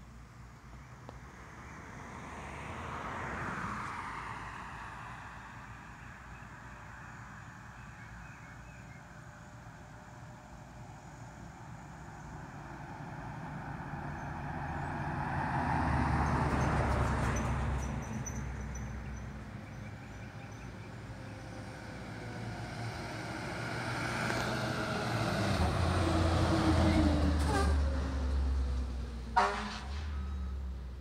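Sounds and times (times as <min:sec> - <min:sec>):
fire engine engine and tyres: 0:00.0 - 0:31.0
pickup truck passing: 0:11.5 - 0:31.0.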